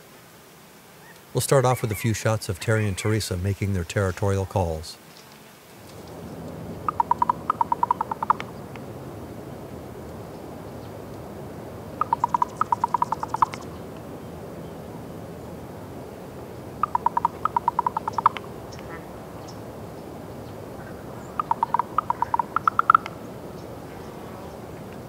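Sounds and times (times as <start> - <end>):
ravens croaking: 1.0 - 5.0, 5.9 - 9.0, 11.8 - 13.9, 16.6 - 19.7, 20.5 - 24.6.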